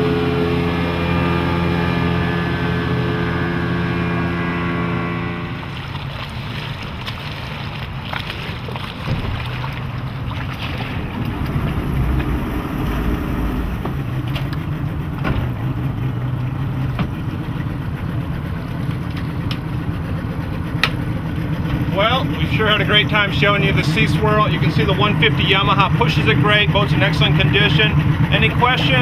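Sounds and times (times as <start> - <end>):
outboard engine humming: 0.0 - 29.0
wind across microphone: 10.3 - 14.6.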